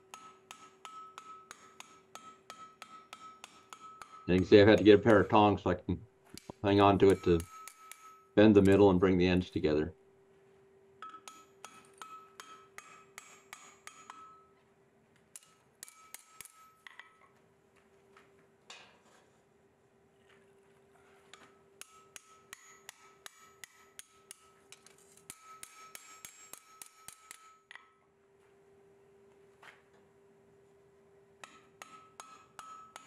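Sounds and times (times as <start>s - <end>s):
hammer striking hot steel: 0.0s - 5.5s, 6.3s - 9.0s, 11.0s - 14.6s, 15.3s - 17.3s, 21.3s - 28.0s, 31.4s - 33.0s.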